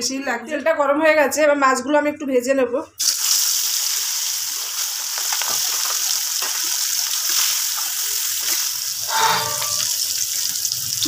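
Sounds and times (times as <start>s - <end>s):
fish sizzling in hot oil: 3.0s - 11.0s
oil spattering crackles: 4.4s - 11.0s.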